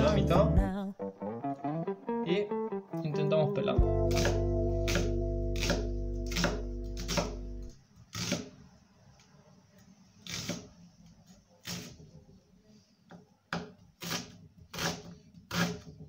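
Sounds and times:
knife chopping on wooden board: 0:04.1 - 0:07.4, 0:08.2 - 0:08.5.

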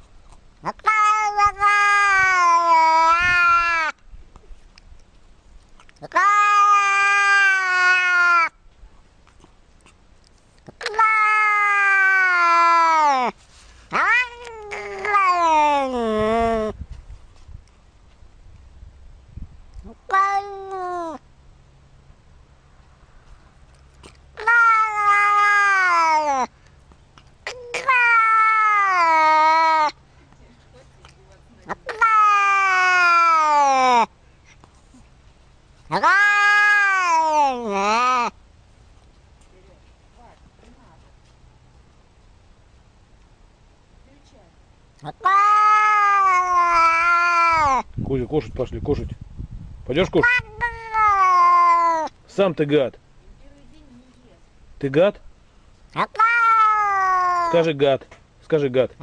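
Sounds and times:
cat meowing: 0:00.6 - 0:03.9, 0:06.0 - 0:08.5, 0:10.8 - 0:13.3, 0:13.9 - 0:16.8, 0:20.0 - 0:21.2, 0:24.4 - 0:26.5, 0:27.4 - 0:30.0, 0:31.6 - 0:34.1, 0:35.9 - 0:38.3, 0:45.0 - 0:47.9, 0:50.1 - 0:52.1, 0:56.0 - 0:57.6.

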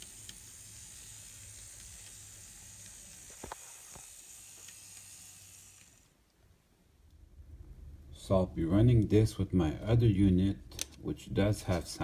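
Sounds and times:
model locomotive whirring: 0:00.0 - 0:06.1.

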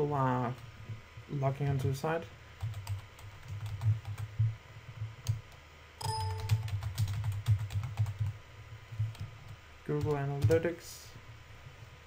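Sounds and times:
typing on computer keyboard: 0:02.6 - 0:04.3, 0:06.0 - 0:08.4
brief tone: 0:06.0 - 0:06.7.

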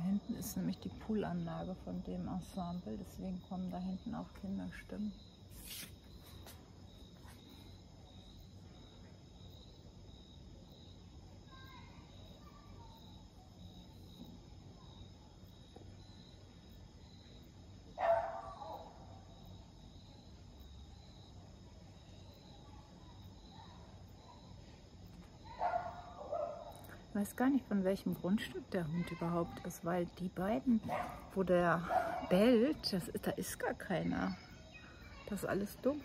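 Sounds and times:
crickets chirping: 0:00.0 - 0:36.0
dog barking: 0:18.0 - 0:19.0, 0:25.5 - 0:26.8, 0:30.9 - 0:32.4.

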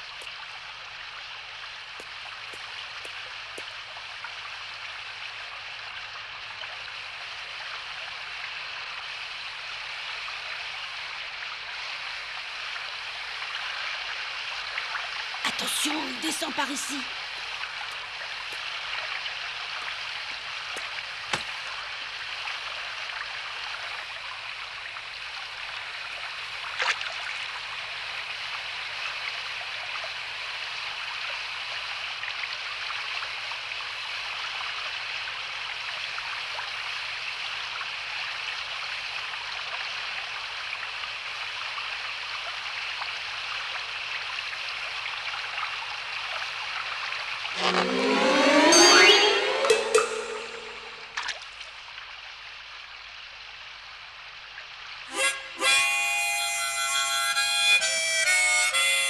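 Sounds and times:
brook flowing over rocks: 0:00.0 - 0:04.6.

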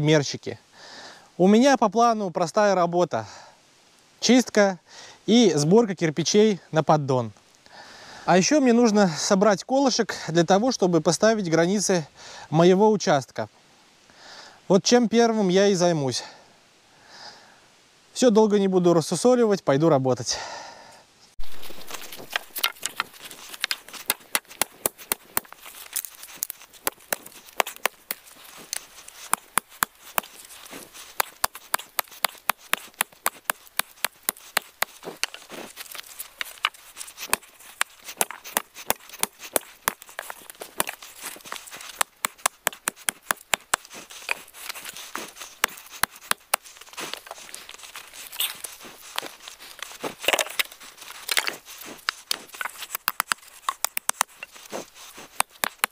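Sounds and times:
axe chopping wood: 0:21.9 - 0:55.9.

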